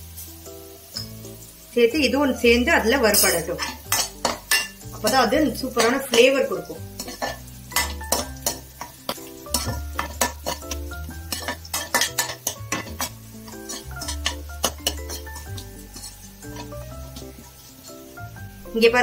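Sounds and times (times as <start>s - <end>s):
garlic frying in oil: 0.0s - 19.0s
metal spatula scraping pan: 3.0s - 18.3s.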